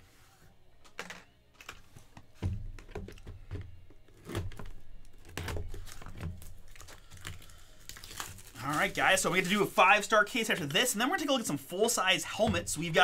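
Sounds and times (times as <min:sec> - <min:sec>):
plastic film crinkling: 0:04.2 - 0:11.4.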